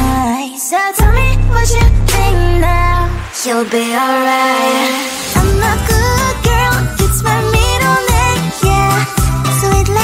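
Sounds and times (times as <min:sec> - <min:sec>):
pop song with singing: 0:00.0 - 0:10.0
heavy bass line: 0:05.1 - 0:08.6.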